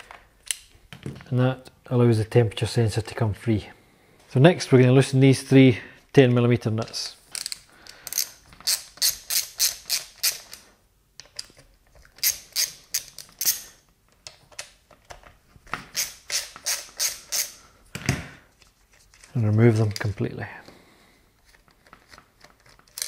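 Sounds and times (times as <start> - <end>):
ratchet wrench clicking: 7.4 - 10.6, 16.0 - 17.6.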